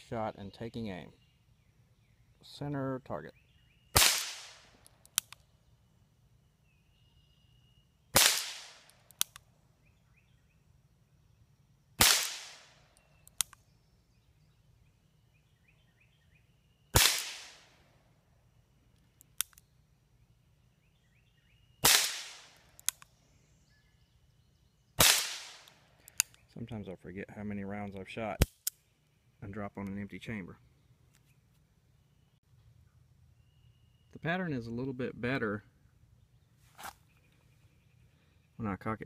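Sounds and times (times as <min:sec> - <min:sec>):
revolver hammer cocking click: 0:22.8 - 0:23.1.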